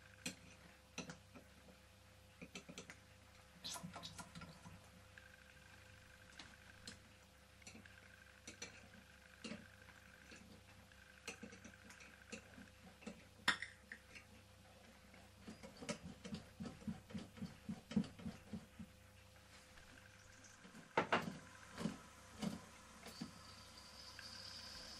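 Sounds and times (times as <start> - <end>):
soft even ticking: 2.4 - 20.9.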